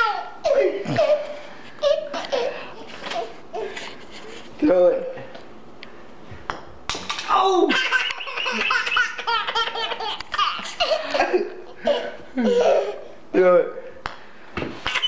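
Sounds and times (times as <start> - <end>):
baby laughing hysterically: 0.0 - 3.7, 7.7 - 13.2.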